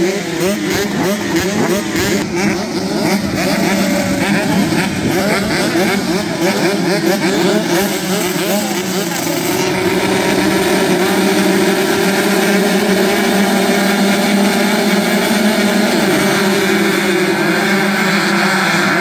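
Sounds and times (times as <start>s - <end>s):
motocross bikes revving: 0.0s - 19.0s.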